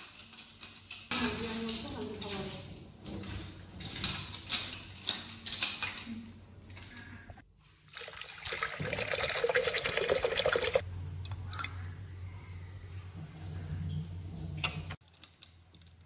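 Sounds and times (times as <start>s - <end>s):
utensils clattering: 0.0s - 7.2s
kitchen tap running: 7.9s - 10.8s
water pouring into metal pot: 7.9s - 10.8s.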